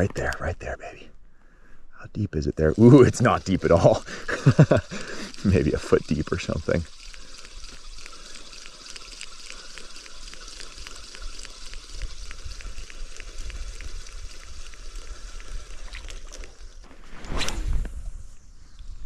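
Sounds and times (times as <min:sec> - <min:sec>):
background hiss: 0:00.0 - 0:19.0
fishing reel ticking: 0:02.8 - 0:16.8.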